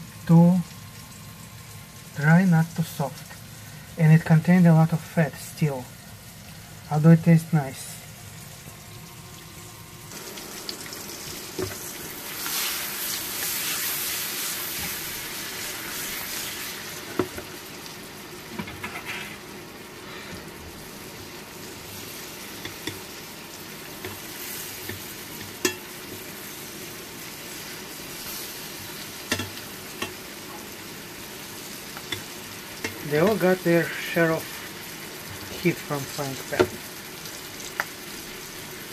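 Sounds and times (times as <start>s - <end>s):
peppers sizzling in a frying pan: 0.0s - 38.9s
metal tongs clicking on a pan: 24.9s - 25.9s, 29.3s - 30.2s, 32.0s - 33.0s.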